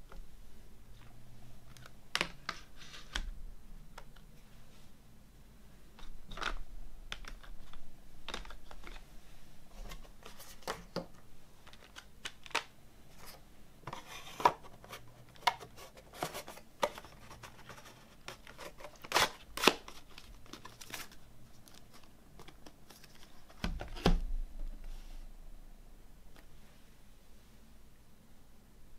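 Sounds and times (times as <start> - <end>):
plastic cases clicking and clacking: 6.0 - 9.0, 10.6 - 12.7.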